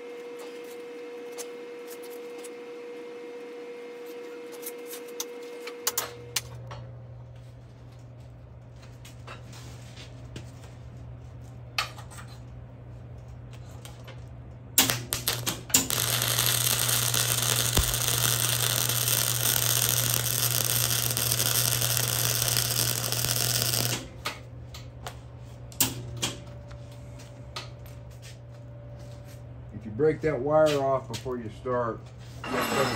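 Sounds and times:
steady low hum: 6.0s - 32.5s
welder crackling: 14.8s - 24.2s
welding arc popping: 14.8s - 24.3s.

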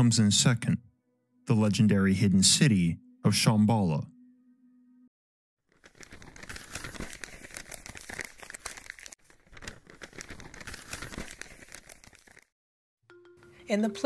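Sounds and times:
paper crinkling and rustling: 5.7s - 12.5s.

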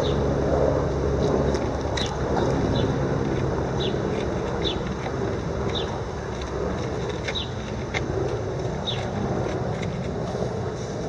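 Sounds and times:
city traffic rumble: 0.0s - 11.0s
bird chirping: 7.2s - 7.6s.

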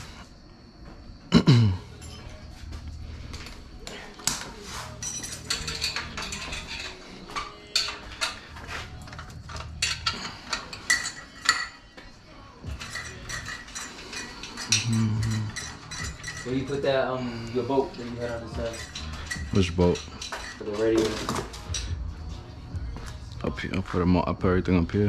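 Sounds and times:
metal clinking on metal: 1.9s - 2.5s, 3.3s - 22.2s.

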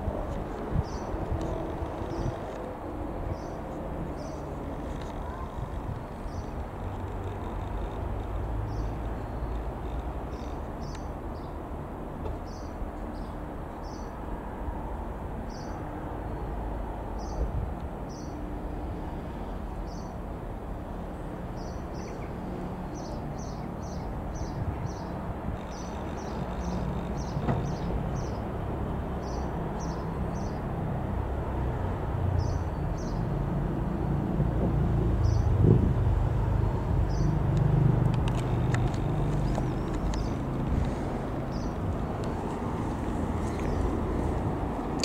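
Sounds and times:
small birds chirping: 0.6s - 2.7s, 3.3s - 11.6s, 12.4s - 14.2s, 18.1s - 18.4s, 21.5s - 28.6s, 29.2s - 30.8s, 32.4s - 33.3s, 35.2s - 35.6s, 37.0s - 37.6s, 38.2s - 45.0s.

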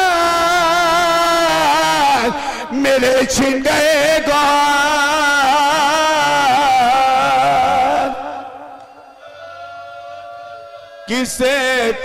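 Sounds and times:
man singing a lament: 0.0s - 8.8s, 11.1s - 12.0s.

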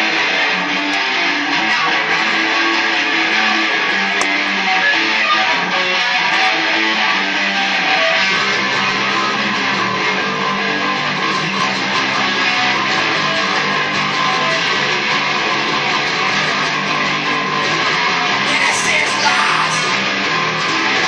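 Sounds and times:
bass guitar: 0.0s - 21.0s
electric guitar: 0.0s - 21.0s.

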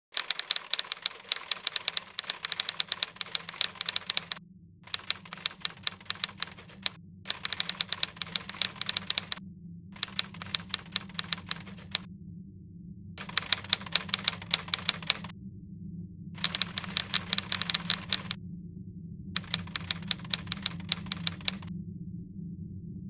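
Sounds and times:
typewriter keys clacking: 0.2s - 9.4s, 10.0s - 12.0s, 13.2s - 15.3s, 16.4s - 18.4s, 19.4s - 21.7s.

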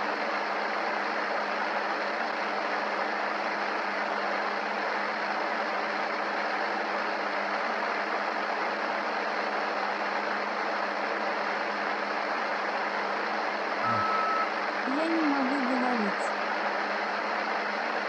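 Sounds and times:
faint low hum: 13.8s - 16.3s.

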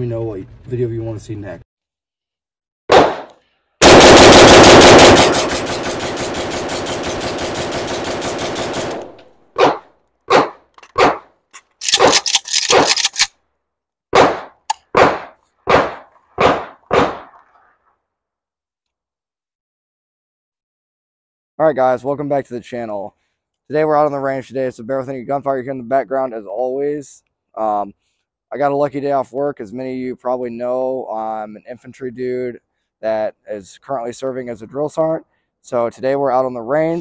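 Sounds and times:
rifle firing: 2.9s - 11.2s, 11.8s - 13.2s, 14.2s - 17.3s.

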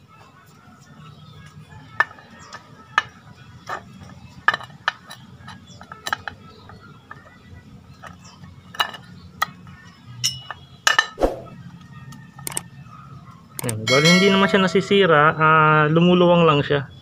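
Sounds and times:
metal parts clicking and clunking: 3.7s - 9.1s, 12.4s - 12.6s, 13.6s - 13.8s.

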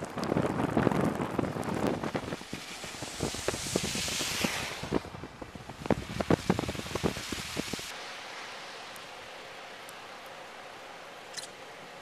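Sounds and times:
storm wind buffeting microphone: 0.0s - 7.9s.

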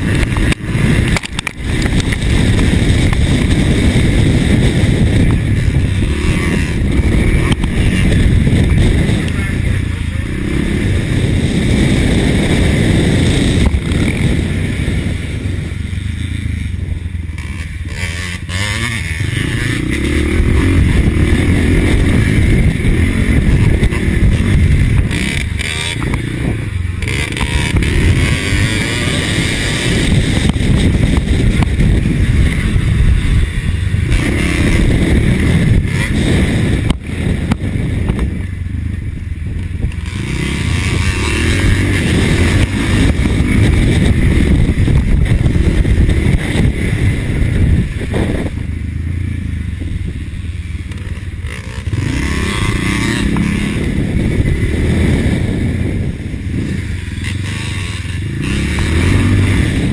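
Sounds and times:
motocross engine revving: 0.0s - 59.9s.

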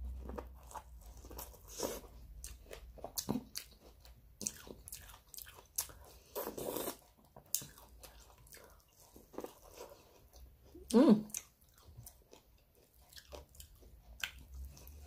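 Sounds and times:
person chewing food: 0.0s - 15.0s.

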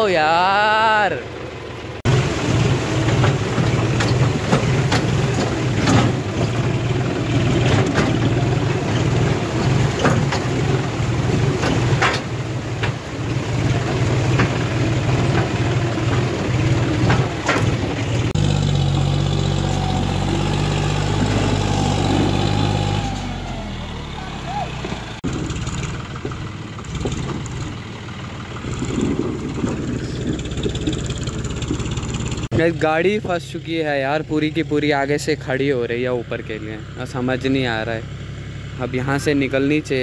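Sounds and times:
tractor diesel engine under load: 0.0s - 40.0s
knocks and rattles: 2.1s - 18.4s, 24.8s - 27.8s, 28.4s - 32.5s.

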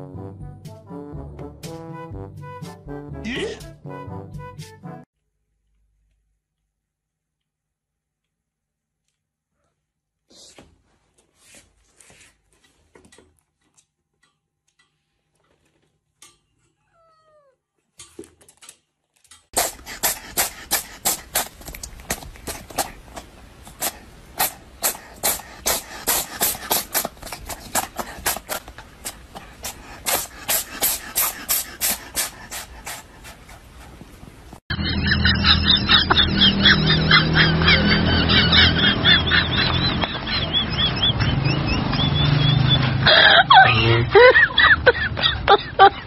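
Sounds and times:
cat licking hair: 19.6s - 34.6s.

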